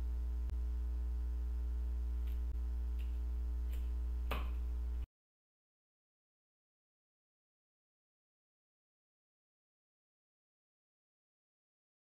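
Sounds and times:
low electrical hum: 0:00.0 - 0:05.1.

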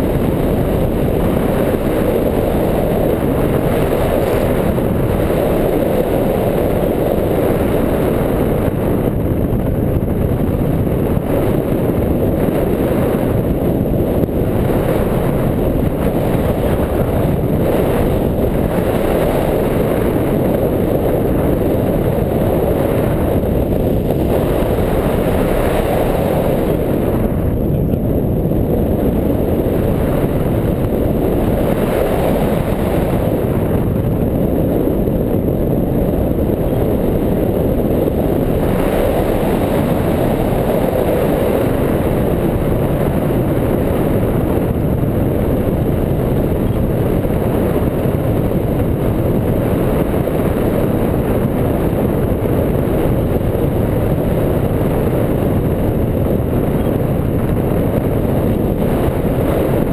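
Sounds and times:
wind buffeting microphone: 0:00.0 - 0:59.9.

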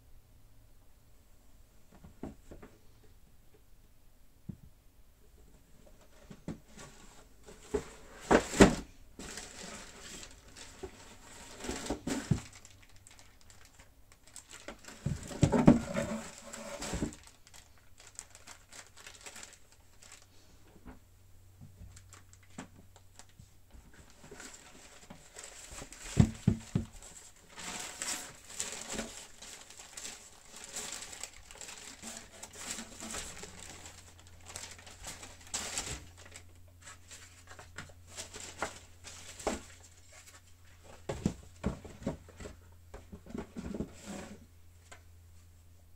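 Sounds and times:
tissue paper rustling: 0:09.2 - 0:20.4, 0:24.0 - 0:41.1
cardboard box knocks and bumps: 0:15.0 - 0:17.2, 0:25.8 - 0:27.1, 0:41.0 - 0:44.3.

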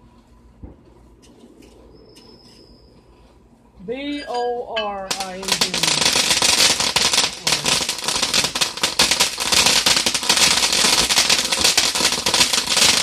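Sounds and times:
firework crackling hiss: 0:05.1 - 0:13.0.

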